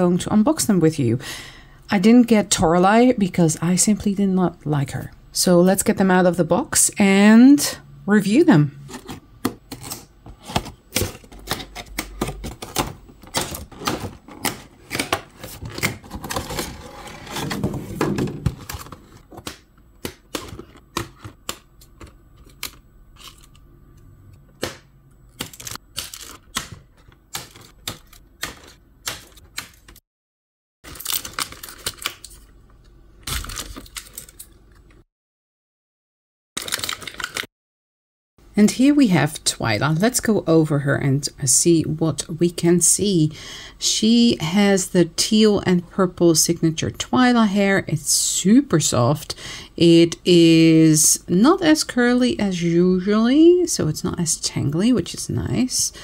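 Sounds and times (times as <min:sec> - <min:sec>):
plastic packaging crackling: 0:25.3 - 0:29.9, 0:30.9 - 0:32.5, 0:33.2 - 0:34.6, 0:36.6 - 0:37.5.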